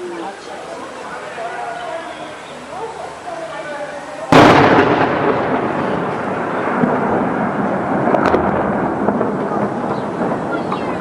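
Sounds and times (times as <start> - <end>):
explosion rumble: 4.3 - 11.0.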